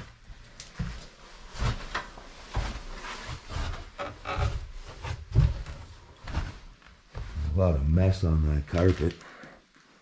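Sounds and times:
footsteps on wooden stairs: 0.0 - 7.7.

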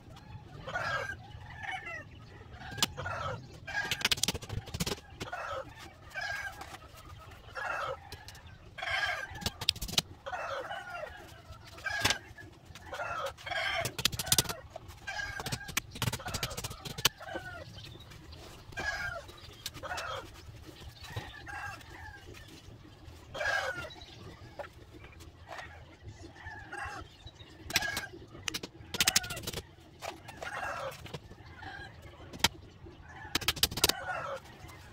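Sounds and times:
chickens clucking: 0.0 - 34.9
roosters crowing: 10.2 - 17.6, 30.3 - 31.0, 33.2 - 34.9.

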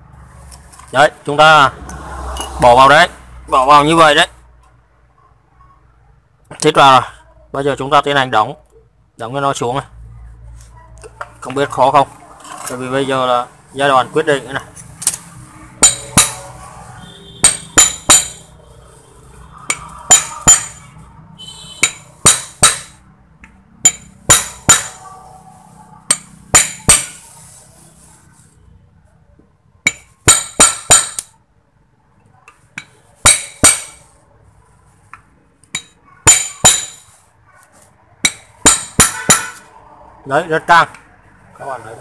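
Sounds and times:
hammer striking steel punch: 15.8 - 16.5, 17.4 - 18.5, 19.7 - 20.8, 21.8 - 23.0, 23.8 - 25.0, 26.1 - 27.2, 29.9 - 31.3, 32.8 - 34.0, 35.8 - 37.1, 38.2 - 39.6.

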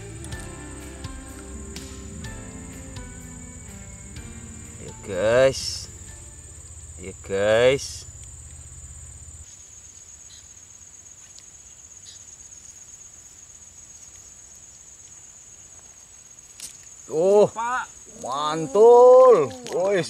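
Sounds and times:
low hum: 0.0 - 9.5
insects trilling: 0.0 - 20.0.

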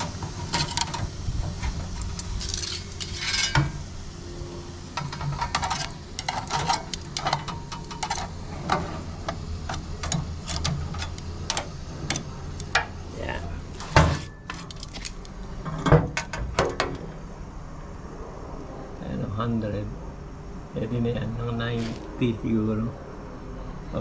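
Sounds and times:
steady low hum: 0.0 - 24.0
tongs clinking on metal tray: 2.2 - 3.8, 5.0 - 12.8.

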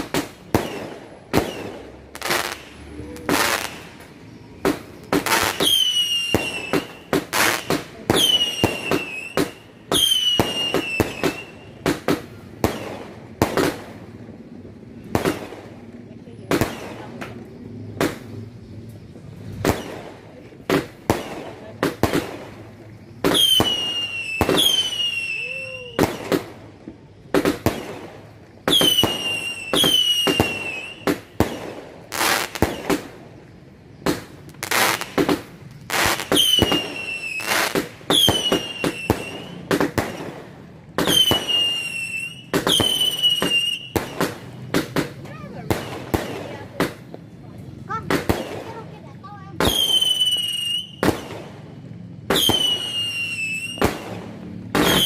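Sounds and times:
firework bangs: 0.0 - 55.0
firework whistle falling in pitch: 23.4 - 26.4.

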